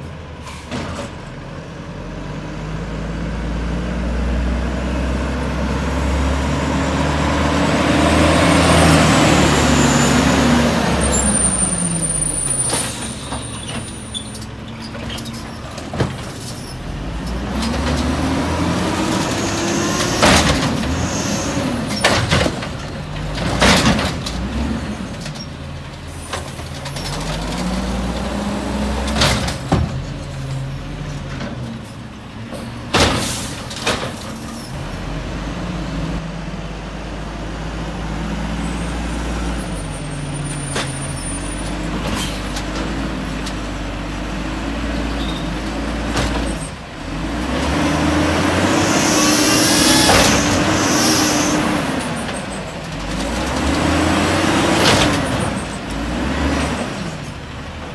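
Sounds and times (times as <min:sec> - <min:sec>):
truck engine revving: 0:01.9 - 0:13.2, 0:16.7 - 0:25.4, 0:26.5 - 0:31.3, 0:32.8 - 0:57.9.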